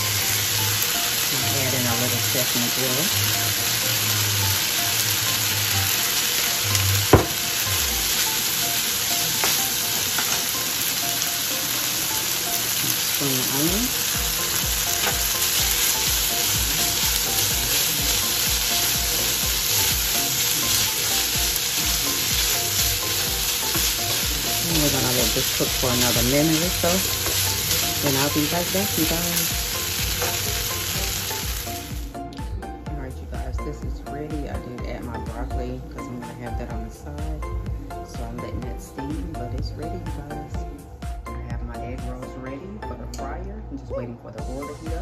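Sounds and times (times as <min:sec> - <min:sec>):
rice sizzling in oil: 0:00.0 - 0:32.1
spatula stirring in skillet: 0:13.8 - 0:31.9.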